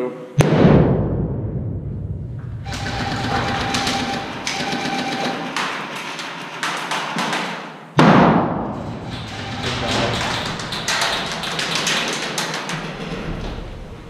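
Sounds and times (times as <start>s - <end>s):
grenade bang echoing: 0.4s - 3.8s.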